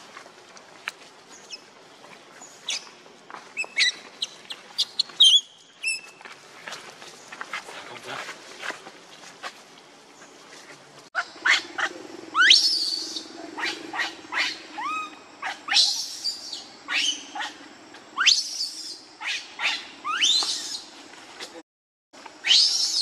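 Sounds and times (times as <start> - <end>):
baby monkey squealing: 3.6 - 4.0, 11.2 - 17.5, 18.2 - 20.8.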